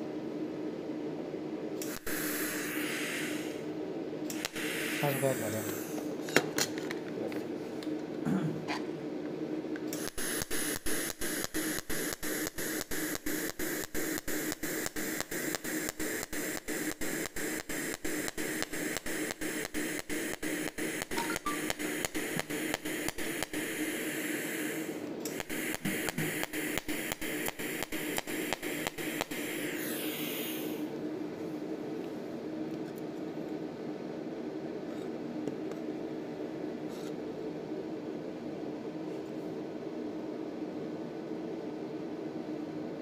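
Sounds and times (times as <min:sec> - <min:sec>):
low machine hum: 0:00.0 - 0:43.0
pulsed welding arc hissing: 0:01.7 - 0:06.2, 0:09.9 - 0:31.0.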